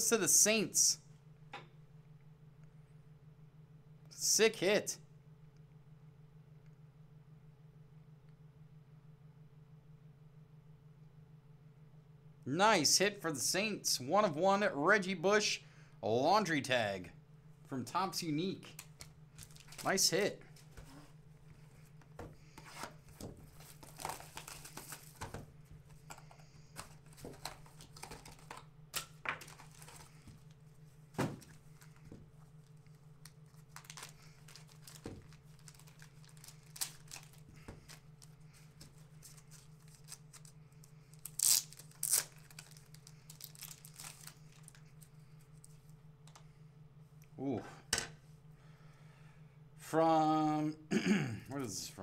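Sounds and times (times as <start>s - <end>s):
cards rustling and crinkling: 18.8s - 30.6s, 31.2s - 45.7s.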